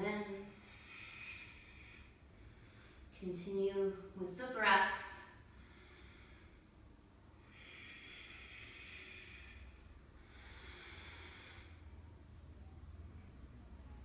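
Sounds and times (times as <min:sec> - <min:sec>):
woman breathing faintly: 0:00.3 - 0:03.2, 0:05.2 - 0:12.5.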